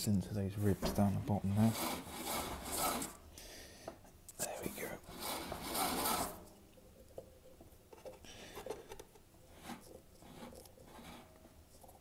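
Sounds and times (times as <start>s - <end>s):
faint rubs and small knocks: 0.4s - 3.2s, 4.1s - 12.0s
belt rubbing scrape: 0.6s - 3.2s, 5.1s - 6.5s, 8.5s - 12.0s.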